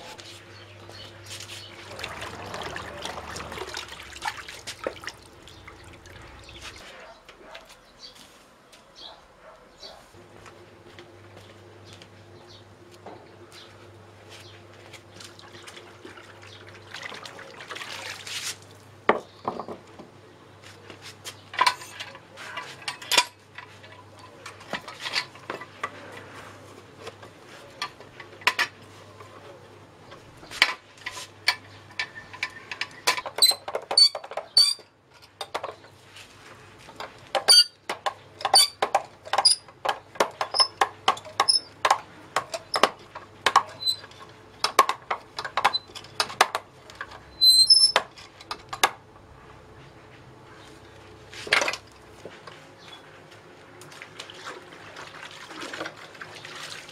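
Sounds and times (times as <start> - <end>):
metal tool clanking on paving stones: 21.5 - 26.0, 37.0 - 48.9.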